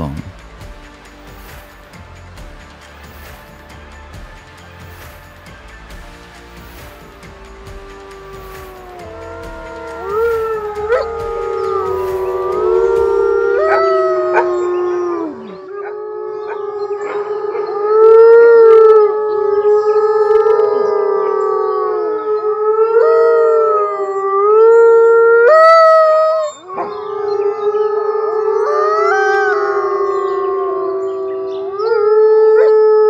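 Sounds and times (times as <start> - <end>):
wolves howling: 7.0 - 33.0.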